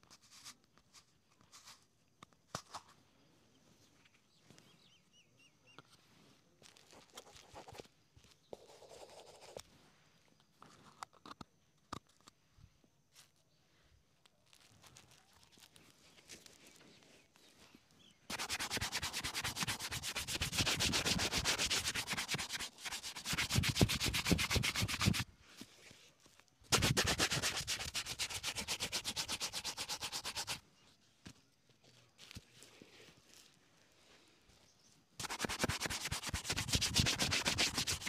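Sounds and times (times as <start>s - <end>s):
shoe brush scrubbing leather: 18.3s - 25.2s, 26.7s - 30.6s, 35.2s - 38.0s.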